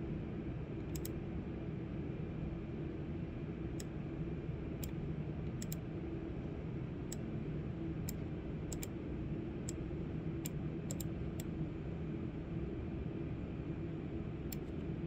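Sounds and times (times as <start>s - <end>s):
steady low hum: 0.0s - 15.0s
computer mouse clicking: 0.9s - 1.2s, 4.8s - 5.8s, 8.0s - 8.9s, 10.4s - 11.5s, 14.5s - 14.9s.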